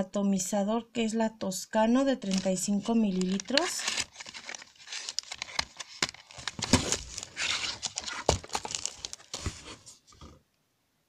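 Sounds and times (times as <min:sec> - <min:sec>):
cardboard packaging rustling: 0:02.2 - 0:10.4.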